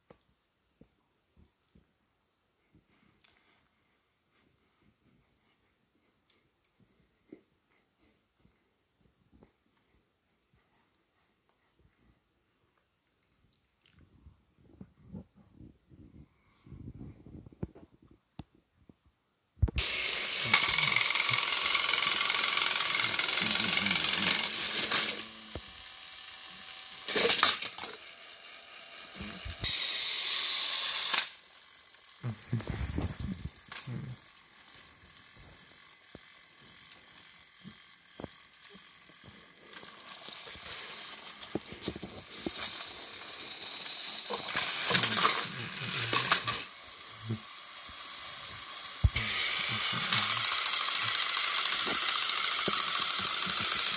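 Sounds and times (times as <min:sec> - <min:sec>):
toy train electric motor whir: 0:19.7 - 0:53.9
toy train rattles and knocks: 0:19.8 - 0:32.3, 0:33.0 - 0:53.9.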